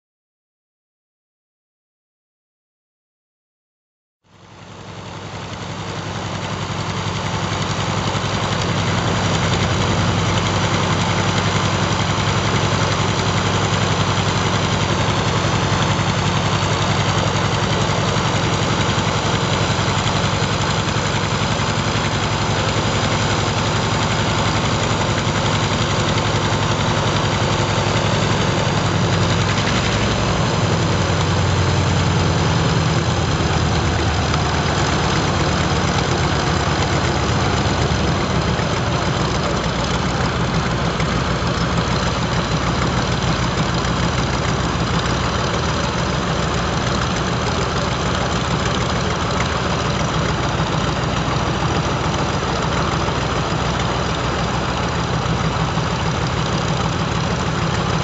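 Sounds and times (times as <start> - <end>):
radial aircraft engine running: 4.5 - 58.0.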